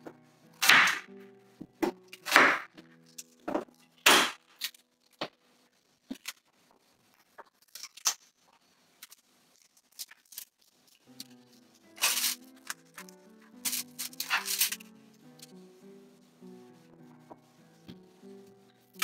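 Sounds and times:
parchment and foil rustling: 1.9 - 15.6.

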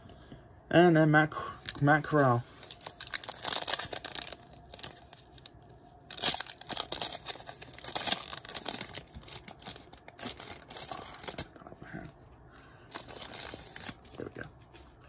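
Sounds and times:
foil wrapper crinkling: 1.7 - 11.7, 12.9 - 14.5.

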